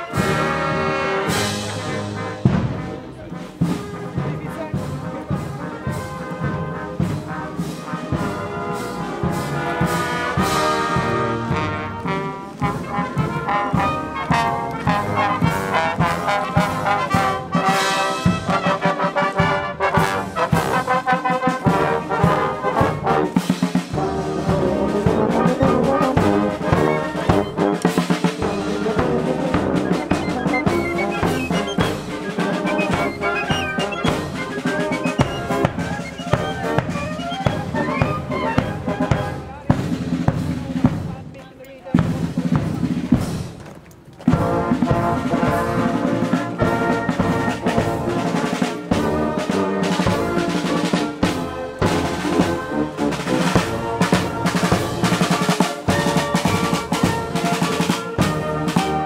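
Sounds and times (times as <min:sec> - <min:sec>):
brass melody: 0:00.0 - 0:40.8, 0:44.3 - 0:59.0
steady drum beat: 0:00.0 - 0:43.6.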